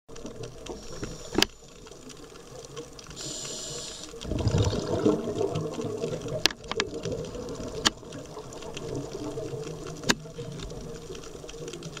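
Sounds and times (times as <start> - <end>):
underwater bubbling and gurgling: 0.1 - 12.0
short hiss: 3.1 - 4.2.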